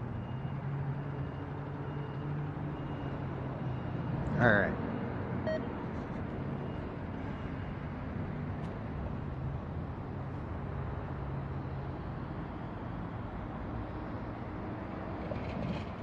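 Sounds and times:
short electronic beep: 5.5s - 5.7s.

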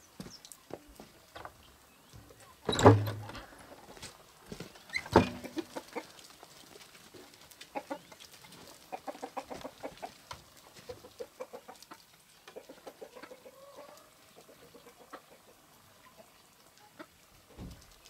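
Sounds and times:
chickens clucking: 4.8s - 17.3s.

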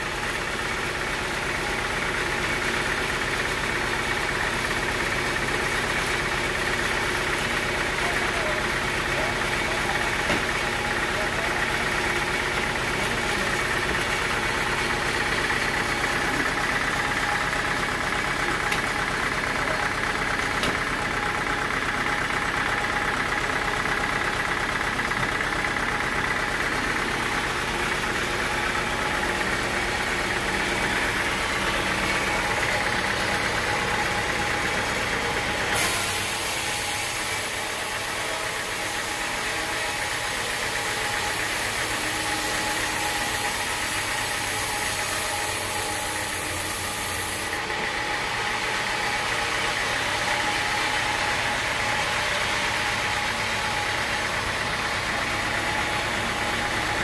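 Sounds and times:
sawmill humming: 0.0s - 57.0s
band blade sawing log: 35.7s - 40.2s.

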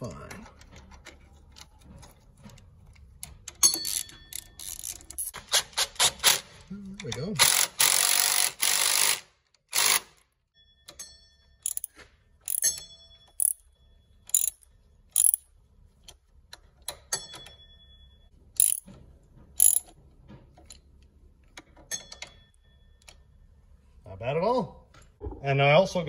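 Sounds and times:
socket ratchet clicking: 3.6s - 6.4s, 11.7s - 11.9s, 12.5s - 12.8s, 13.4s - 13.6s, 14.3s - 14.6s, 15.2s - 15.4s, 18.6s - 18.9s, 19.6s - 19.9s.

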